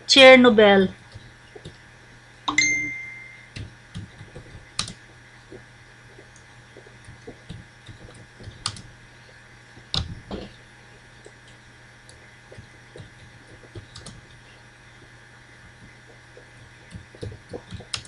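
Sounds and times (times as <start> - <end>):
brief ringing tone: 2.5 - 3.5
computer keyboard typing: 3.5 - 5.0, 7.0 - 8.9, 13.0 - 14.2, 16.8 - 18.0.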